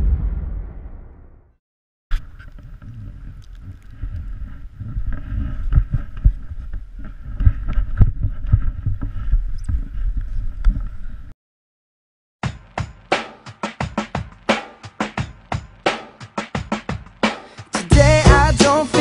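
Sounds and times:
wind buffeting microphone: 2.7 - 11.3.

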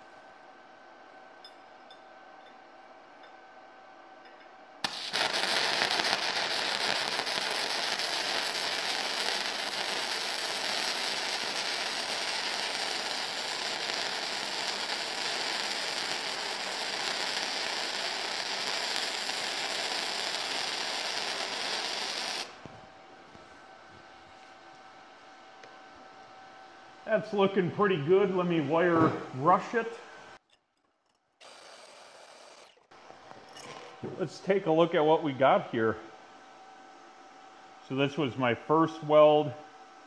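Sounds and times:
welding arc: 4.8 - 22.6, 31.4 - 32.7.

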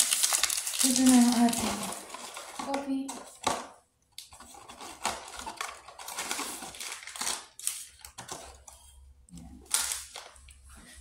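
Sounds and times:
paper rustling: 0.0 - 3.7, 4.3 - 9.0.

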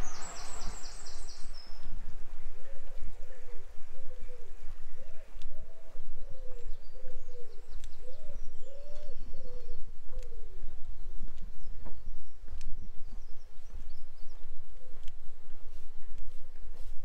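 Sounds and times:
low rumble: 0.0 - 6.2
small birds chirping: 0.0 - 16.9
pigeon cooing: 2.6 - 10.7.

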